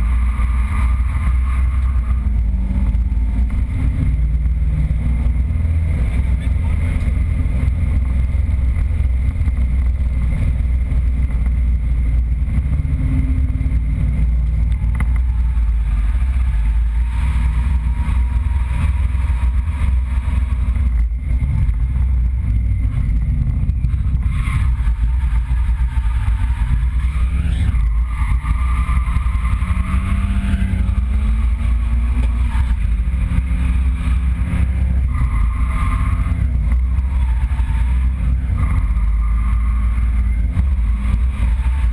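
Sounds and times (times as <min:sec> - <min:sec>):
car engine droning inside cabin: 0:00.0 - 0:41.9.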